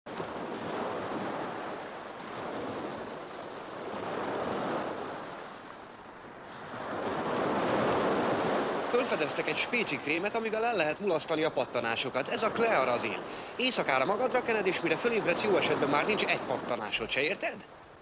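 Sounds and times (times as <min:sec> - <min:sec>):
sea waves breaking on shore: 0:00.1 - 0:18.0.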